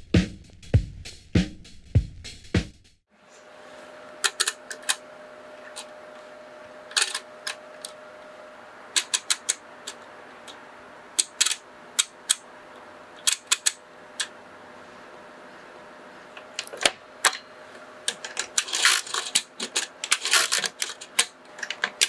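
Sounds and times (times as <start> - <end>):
mechanical calculator lever clicks: 4.2 - 5.0, 9.0 - 9.6, 11.2 - 12.4, 13.2 - 14.3, 18.1 - 22.0.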